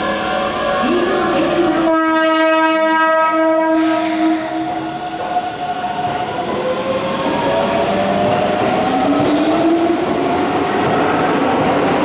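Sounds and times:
rising train whine: 0:00.0 - 0:12.0
train horn: 0:00.8 - 0:04.9.

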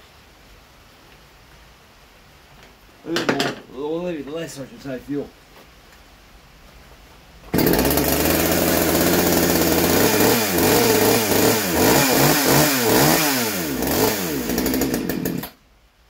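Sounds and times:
chainsaw idling and revving: 0:07.5 - 0:15.6.

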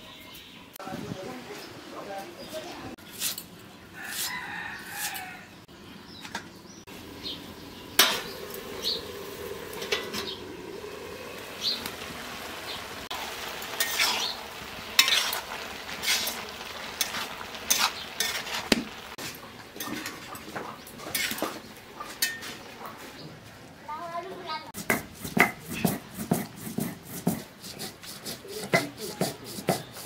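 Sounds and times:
metal spatula scraping a pan: 0:03.0 - 0:05.3, 0:08.0 - 0:08.4, 0:13.4 - 0:22.7
cabbage sizzling in a pan: 0:06.9 - 0:21.6.

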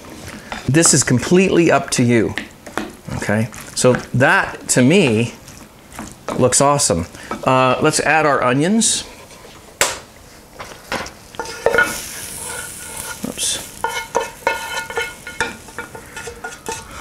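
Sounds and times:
frying pan knocking: 0:02.3 - 0:03.0, 0:10.9 - 0:12.0, 0:13.8 - 0:16.9
scraping pan with ringing note: 0:13.8 - 0:17.0.

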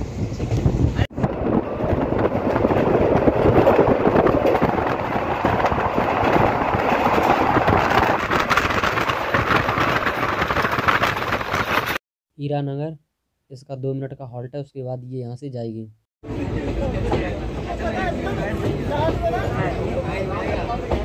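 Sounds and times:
passenger train rumbling and rattling: 0:00.0 - 0:12.0, 0:16.2 - 0:21.0
rushing air: 0:00.0 - 0:12.0.

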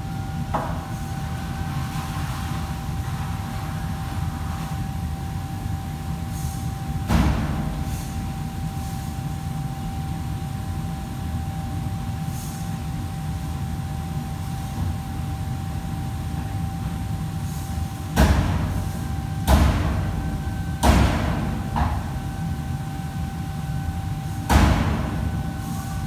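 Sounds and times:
machinery hum with faint whine: 0:00.0 - 0:26.0.

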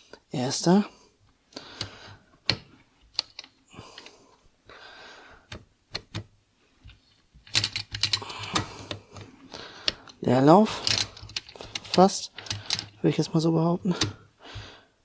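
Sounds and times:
gearbox metal clicks and rattles: 0:07.4 - 0:08.7, 0:10.0 - 0:13.0.

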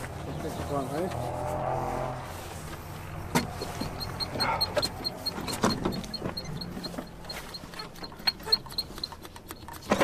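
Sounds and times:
starter motor cranking: 0:03.8 - 0:10.0.

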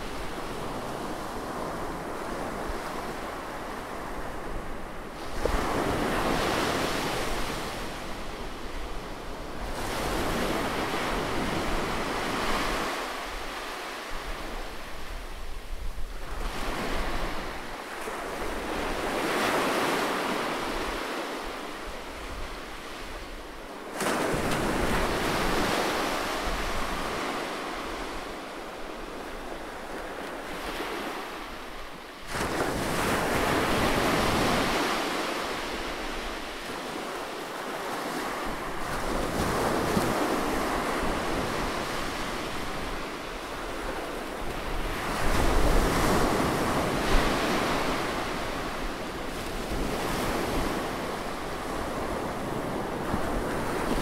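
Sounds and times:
ocean waves breaking on beach: 0:00.0 - 0:54.0.

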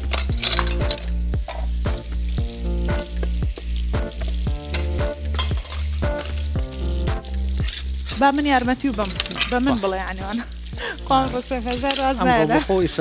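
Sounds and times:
background music with steady beat: 0:00.0 - 0:13.0
steak sizzling in a pan: 0:00.0 - 0:13.0.

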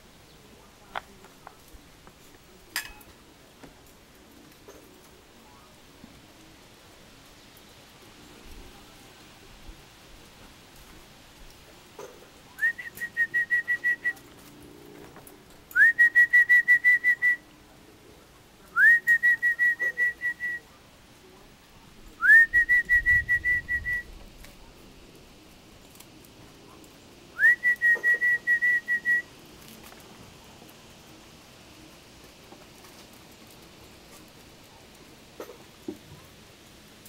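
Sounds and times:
loud whistling: 0:12.6 - 0:14.2, 0:15.7 - 0:17.4, 0:18.8 - 0:20.6, 0:22.2 - 0:24.1, 0:27.4 - 0:29.3.

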